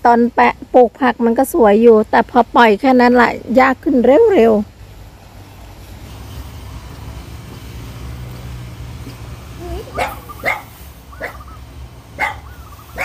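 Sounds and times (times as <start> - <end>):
distant grass-cutter engines: 0.0 - 13.0
short high calls: 9.5 - 13.0.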